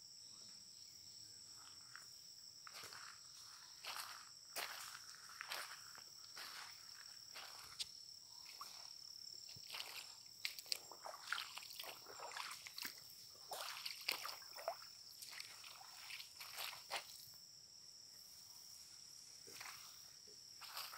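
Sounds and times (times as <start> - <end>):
footsteps on muddy trail: 2.6 - 17.3, 19.5 - 20.0, 20.6 - 20.9.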